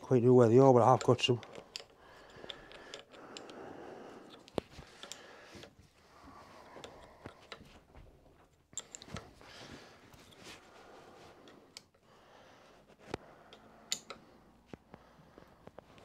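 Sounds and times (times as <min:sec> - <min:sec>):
spanner metallic clicks and scraping: 0:00.5 - 0:03.6, 0:04.2 - 0:06.0, 0:08.5 - 0:09.4, 0:13.1 - 0:14.4.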